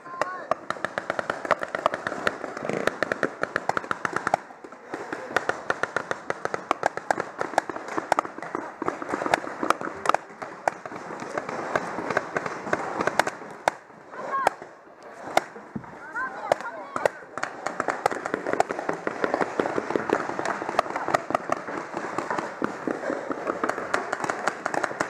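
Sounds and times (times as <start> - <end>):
paintball markers firing: 0.0 - 25.0
person shouting: 14.2 - 14.6.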